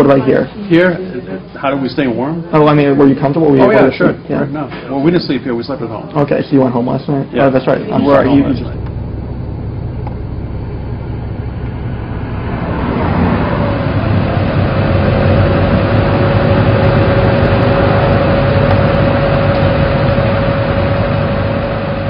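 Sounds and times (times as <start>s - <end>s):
steady whine: 0.0s - 22.0s
car driving: 8.0s - 22.0s
truck engine running: 8.1s - 22.0s.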